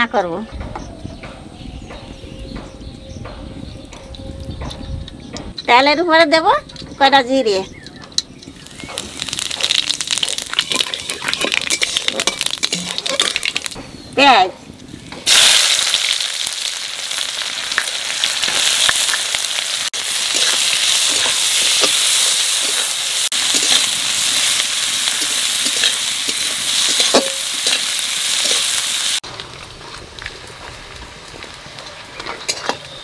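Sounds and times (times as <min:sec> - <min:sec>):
onion sizzling in hot oil: 0:07.1 - 0:14.1, 0:14.8 - 0:33.0
spatula scraping pan: 0:08.1 - 0:13.8, 0:20.2 - 0:28.8.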